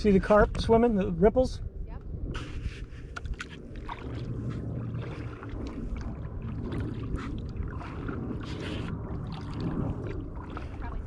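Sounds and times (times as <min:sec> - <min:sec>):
steady low rumble: 0:00.0 - 0:11.0
paddle splashing and dripping: 0:02.4 - 0:11.0.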